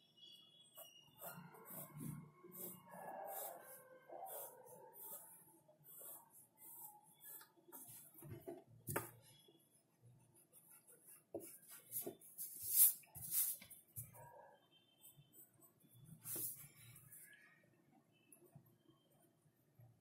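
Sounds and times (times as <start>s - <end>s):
pencil scratching on paper: 0.8s - 14.2s, 15.1s - 17.2s.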